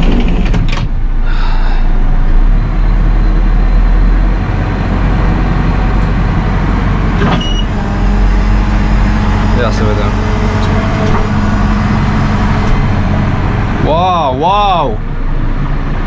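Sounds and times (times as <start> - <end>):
diesel engine running: 0.0 - 16.0.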